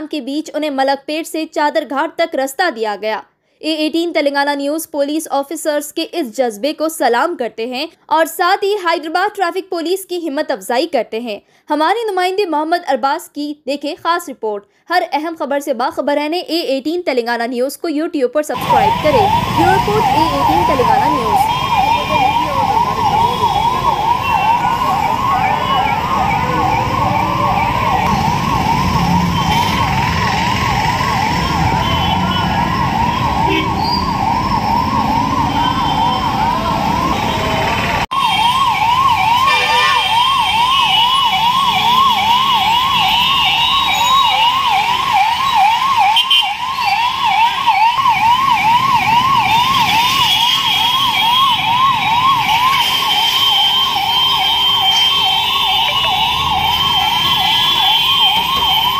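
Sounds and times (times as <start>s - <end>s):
ambulance siren yelp: 18.5s - 58.9s
traffic rumble: 18.6s - 58.9s.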